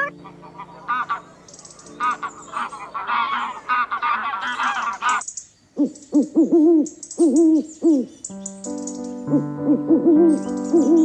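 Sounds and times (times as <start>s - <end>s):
music notes: 0.0s - 3.3s, 8.3s - 11.0s
young geese calling: 0.0s - 5.3s
owl hoots: 5.8s - 8.1s, 9.3s - 11.0s.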